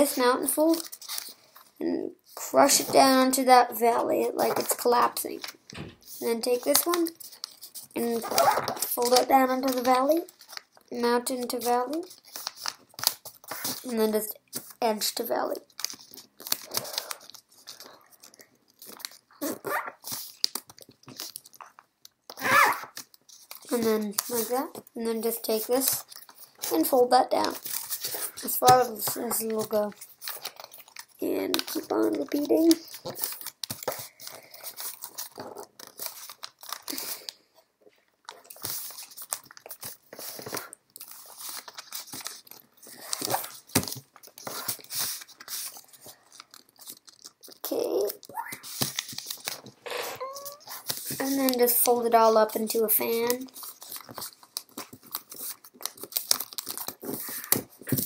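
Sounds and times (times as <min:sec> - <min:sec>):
paper crinkling and crackling: 0:00.0 - 0:03.2, 0:04.4 - 0:58.0
soft voice-like sound: 0:49.9 - 0:51.6.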